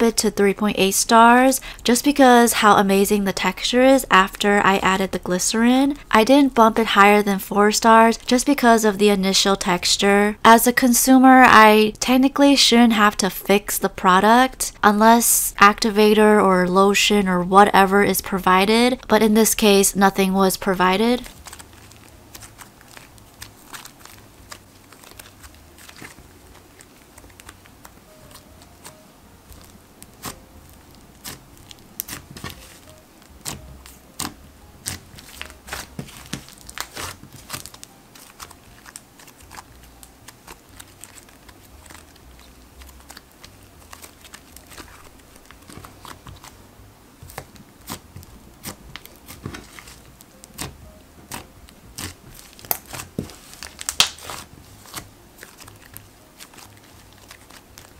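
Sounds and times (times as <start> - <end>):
soft background music: 0.0 - 57.9
slime squishing and crackling: 20.8 - 46.6, 47.2 - 57.9.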